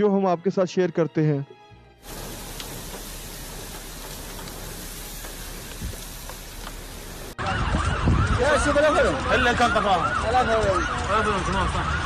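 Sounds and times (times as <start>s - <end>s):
torrential rain pouring: 2.0s - 12.0s
wailing emergency siren: 4.6s - 12.0s.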